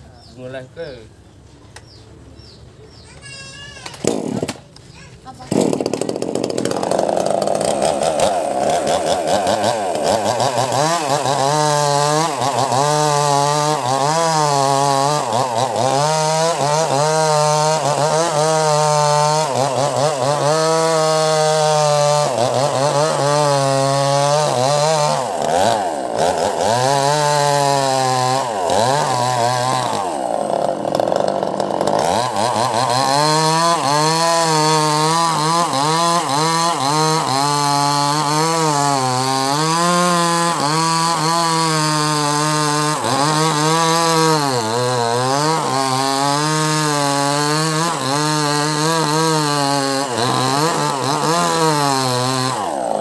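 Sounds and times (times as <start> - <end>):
chainsaw cutting log: 3.2 - 53.0.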